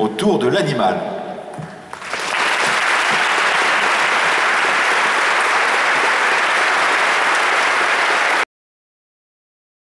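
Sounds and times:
audience applauding: 1.8 - 8.5.

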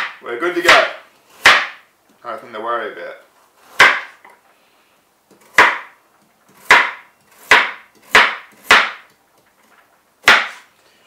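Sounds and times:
knife chopping on plastic board: 0.0 - 1.8, 3.8 - 4.2, 5.3 - 9.2, 10.2 - 10.6.

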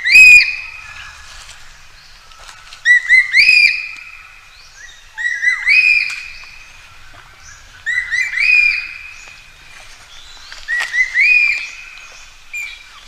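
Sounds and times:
magpie calling: 0.0 - 1.3, 2.8 - 9.3, 10.6 - 13.0.

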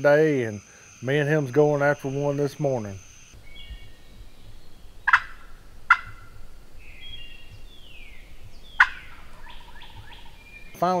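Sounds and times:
songbirds singing: 0.0 - 11.0
turkey gobbling: 3.4 - 10.8.

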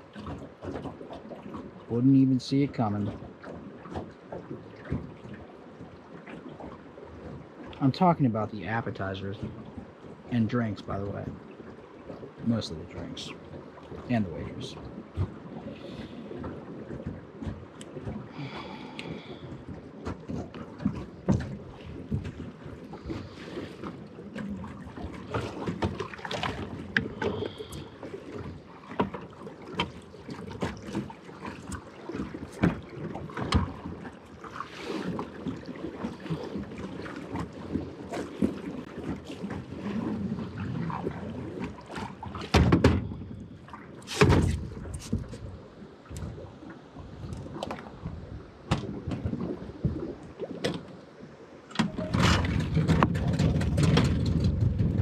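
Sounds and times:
knocks and clicks on boat: 0.0 - 55.0
water: 0.0 - 55.0
wind: 0.0 - 55.0.

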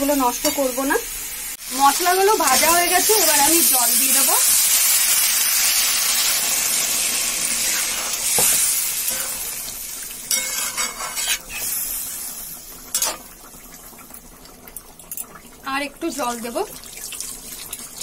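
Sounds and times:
water sizzling in hot pan: 0.0 - 18.0
metal spatula scraping pan: 10.3 - 11.7.

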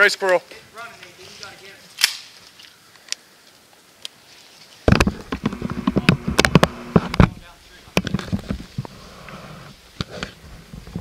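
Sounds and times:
low buzz: 4.9 - 7.4.

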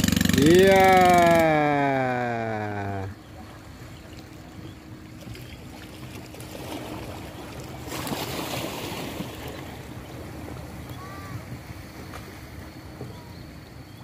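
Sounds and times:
rush of water: 0.8 - 13.3.

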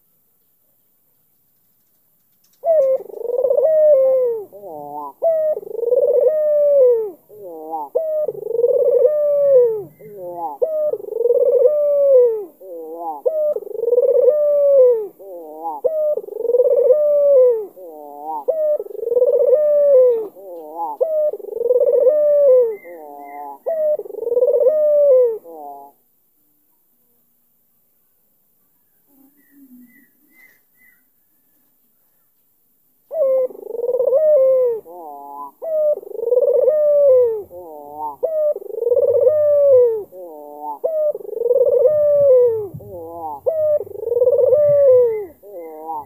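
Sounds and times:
dove cooing: 2.4 - 26.0, 33.0 - 46.0.

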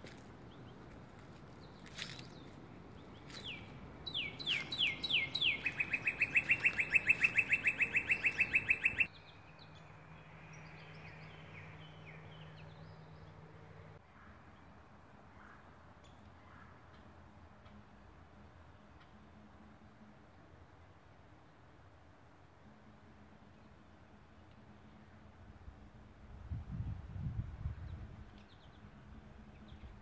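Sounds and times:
faint bird chirps: 3.1 - 9.9
songbird whistles and trill: 3.3 - 9.3.

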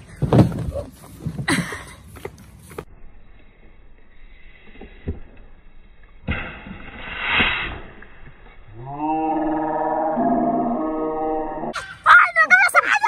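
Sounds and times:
bottle rocket blasting off: 6.2 - 8.2.

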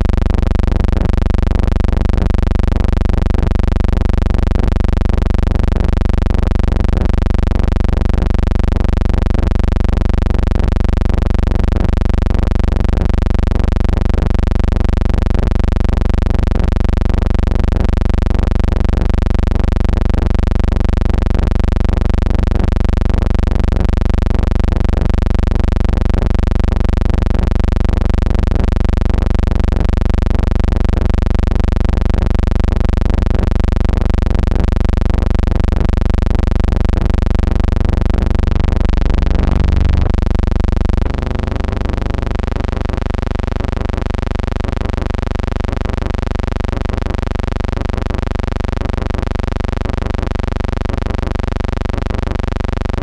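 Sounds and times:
loud electrical hum: 33.9 - 53.0.

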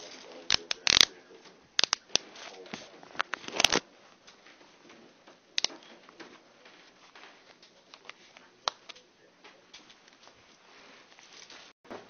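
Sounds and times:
clothing rustling: 9.7 - 11.8.

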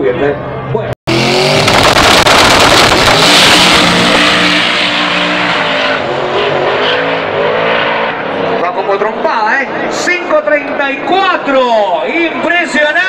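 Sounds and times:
drag car accelerating hard: 1.1 - 11.0.

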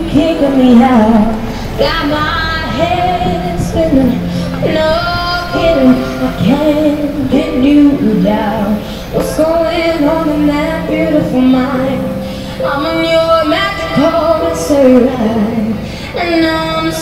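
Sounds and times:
electronic keyboard: 0.0 - 17.0
girl singing into a microphone: 0.0 - 17.0.

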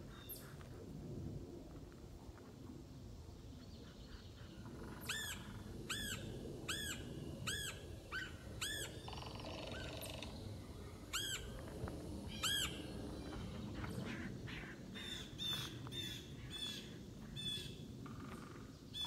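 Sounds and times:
woodpecker calling: 3.8 - 10.4, 11.1 - 11.5, 12.3 - 19.0.

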